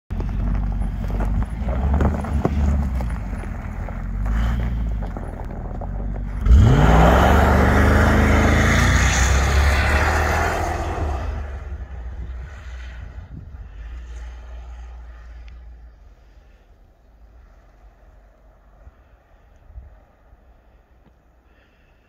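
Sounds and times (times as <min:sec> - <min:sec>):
truck engine revving: 0:00.2 - 0:15.1.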